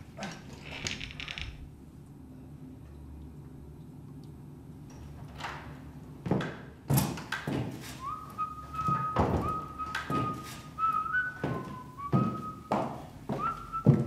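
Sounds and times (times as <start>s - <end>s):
footsteps on hard floor: 6.2s - 14.0s
person whistling a tune: 8.0s - 14.0s.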